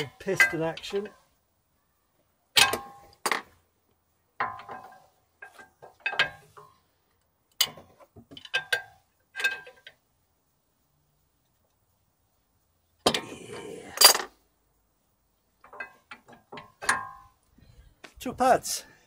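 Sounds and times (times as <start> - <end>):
metal tools clinking: 0.2 - 1.1.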